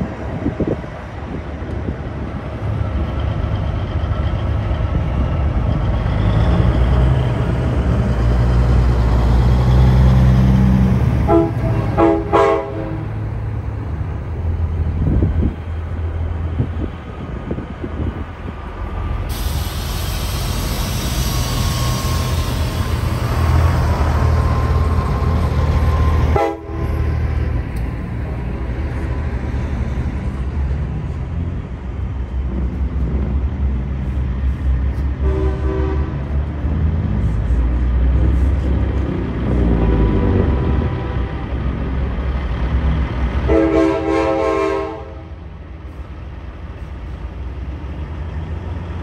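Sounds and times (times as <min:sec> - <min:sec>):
truck diesel engines rumbling: 0:00.0 - 0:49.0
truck horn blasts: 0:11.2 - 0:13.2, 0:26.3 - 0:27.0, 0:35.2 - 0:36.3, 0:43.5 - 0:45.4.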